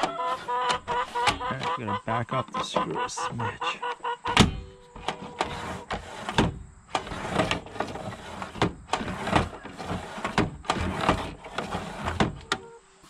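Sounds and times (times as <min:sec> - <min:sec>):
sliding door scraping and rattling: 0:00.0 - 0:01.7, 0:04.3 - 0:12.5.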